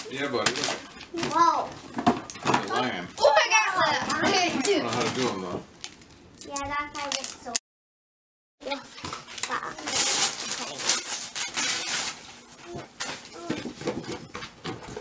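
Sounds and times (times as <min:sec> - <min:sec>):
wrapping paper rustling and tearing: 0:00.0 - 0:00.8, 0:04.6 - 0:06.0, 0:07.0 - 0:07.6, 0:08.9 - 0:13.5.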